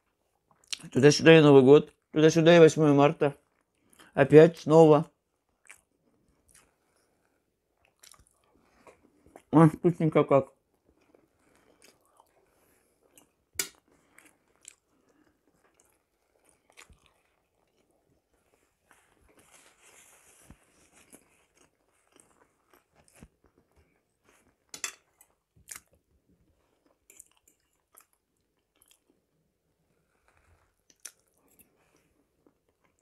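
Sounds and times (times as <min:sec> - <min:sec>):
mouth clicks and smacks: 0:00.5 - 0:01.0, 0:05.6 - 0:06.7, 0:07.8 - 0:08.5, 0:30.9 - 0:31.6
close-up chewing: 0:05.4 - 0:09.5, 0:10.6 - 0:33.0.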